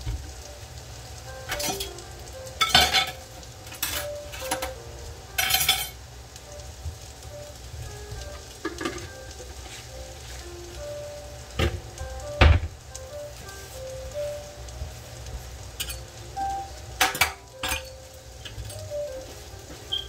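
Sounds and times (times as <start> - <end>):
vegetables sizzling in a pan: 0.0 - 20.0.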